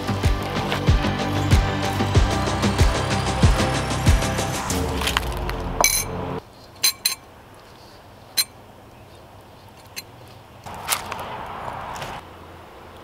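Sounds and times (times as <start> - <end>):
background music: 0.0 - 6.4.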